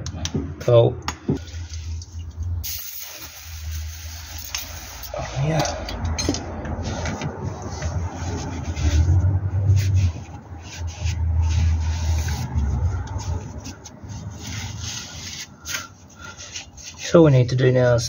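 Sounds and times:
cloth rag rubbing on metal: 0:06.8 - 0:17.6.

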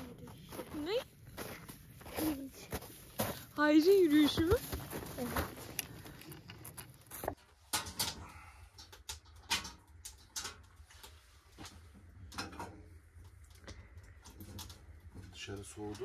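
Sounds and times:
knocks and clatter at stove: 0:07.7 - 0:08.2, 0:08.8 - 0:10.7.

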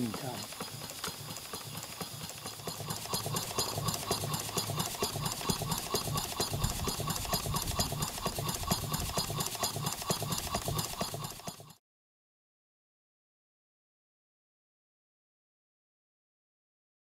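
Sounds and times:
model steam engine chuffing: 0:00.0 - 0:11.8.

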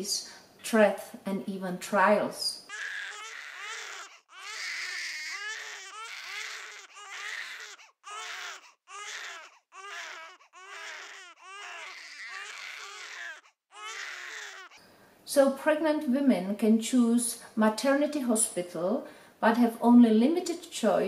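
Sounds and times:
newborn baby crying: 0:02.7 - 0:14.8.

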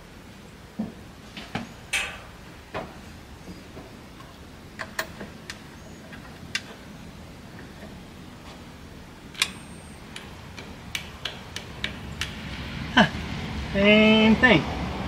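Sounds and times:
sharp clicks and taps: 0:09.4 - 0:12.4.

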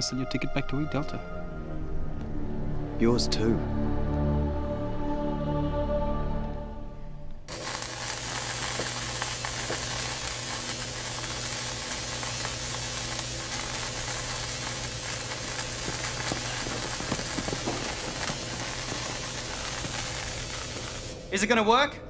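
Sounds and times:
welding crackle and sizzle: 0:07.5 - 0:21.2.

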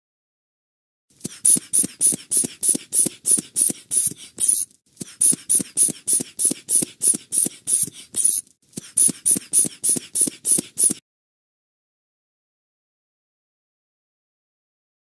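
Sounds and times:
cartoon scraping tool strokes: 0:01.1 - 0:11.0.

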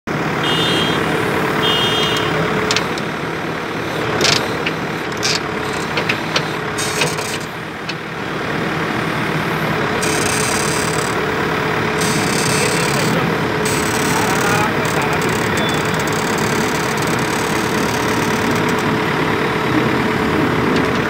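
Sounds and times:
excavator diesel engine running: 0:00.1 - 0:21.0
short high-pitched tones: 0:15.4 - 0:16.8.

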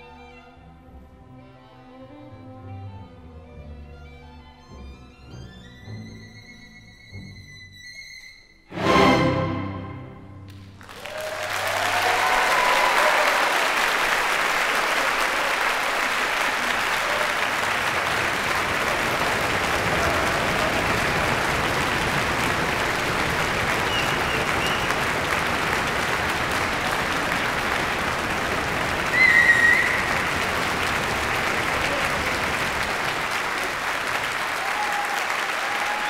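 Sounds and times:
string orchestra chord: 0:08.7 - 0:10.6
audience applause: 0:10.4 - 0:36.0
audience cheers: 0:10.8 - 0:36.0.

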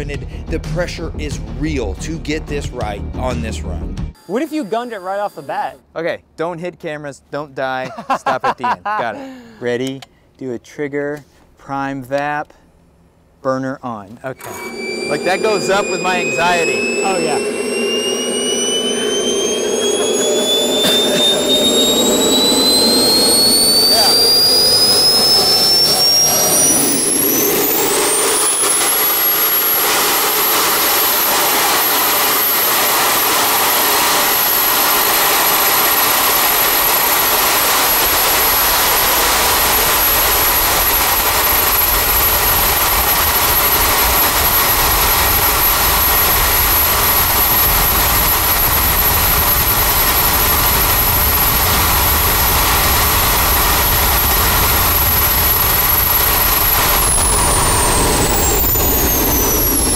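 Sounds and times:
turbojet engine whine and roar: 0:14.3 - 0:59.9.

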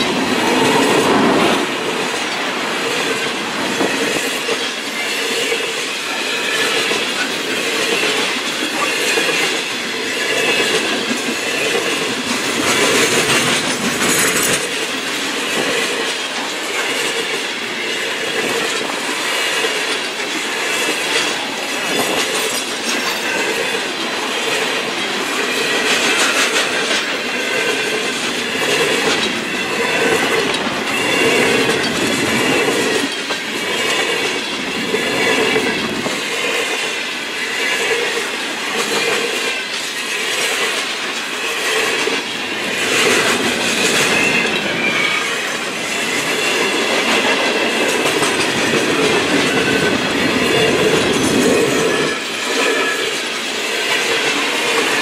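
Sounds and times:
freight train wheels rushing on rails: 0:00.0 - 0:55.0
wheels clacking over rail joints: 0:00.0 - 0:55.0
wheel squeal: 0:42.8 - 0:46.8.

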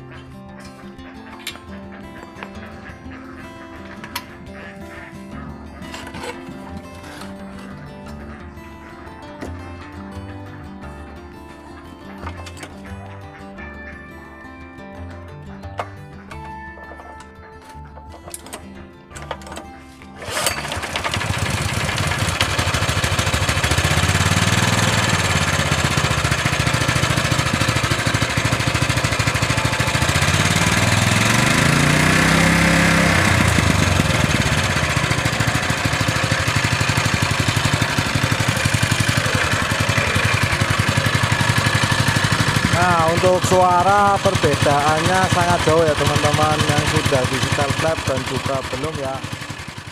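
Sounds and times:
small engine running: 0:01.2 - 0:13.2, 0:19.2 - 0:49.9
recoil rope pull-start: 0:20.2 - 0:49.9.

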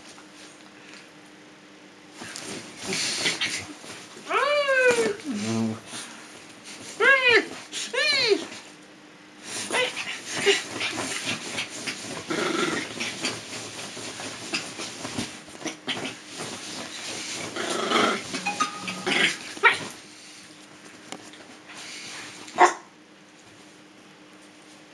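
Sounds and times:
small dog growling: 0:09.8 - 0:13.4, 0:17.6 - 0:18.3.

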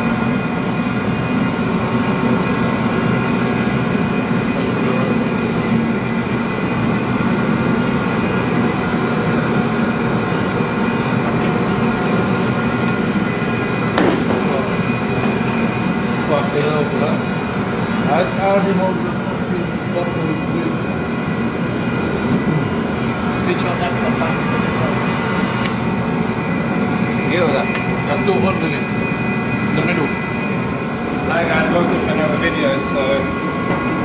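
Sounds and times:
heat gun fan blowing: 0:00.0 - 0:34.0.

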